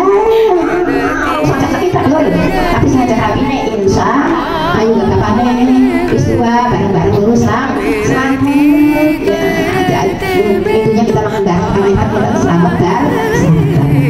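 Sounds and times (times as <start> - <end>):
person singing with vibrato: 0.0 - 14.0.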